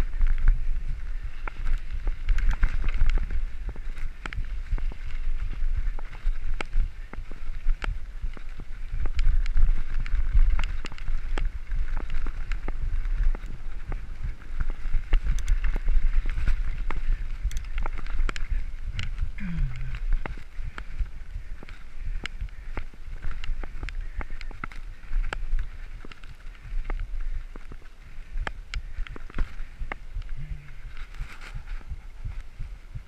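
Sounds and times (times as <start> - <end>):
bike clicking and rattling: 0.0 - 33.0
bike tyres rumbling on gravel: 0.0 - 33.0
wind on microphone: 0.0 - 33.0.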